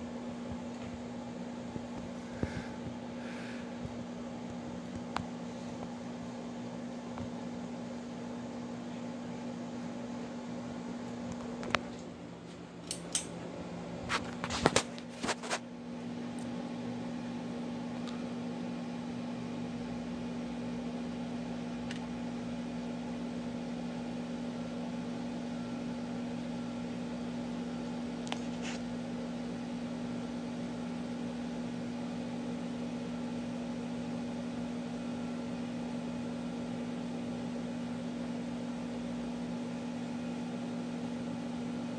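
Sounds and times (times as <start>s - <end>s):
ceiling fan motor humming: 0.0s - 41.9s
ceiling fan pull-chain clicking: 12.8s - 13.3s.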